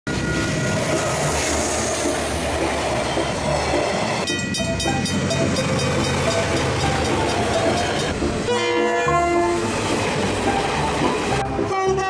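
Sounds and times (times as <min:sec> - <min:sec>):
train rumble with wheel clatter: 0:00.1 - 0:12.0
crossing bells ringing rapidly: 0:02.5 - 0:11.8.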